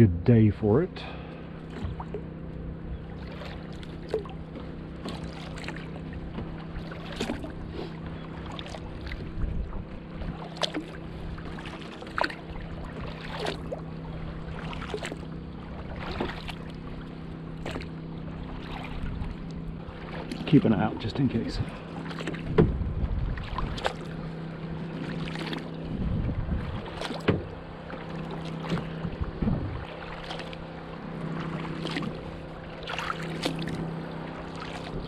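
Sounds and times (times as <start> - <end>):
steady low hum: 0.0 - 35.0
paddle splashing in water: 1.2 - 35.0.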